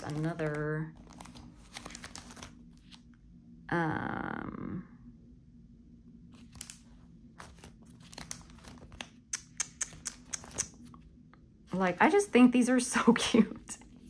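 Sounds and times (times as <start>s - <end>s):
sticker sheets crinkling: 0.0s - 3.0s, 6.4s - 10.9s.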